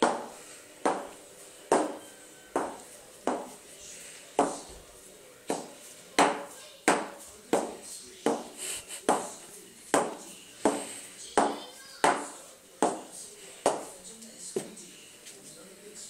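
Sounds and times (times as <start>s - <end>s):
boot heels knocking on tile floor: 0.0s - 3.6s, 4.4s - 4.7s, 5.5s - 9.4s.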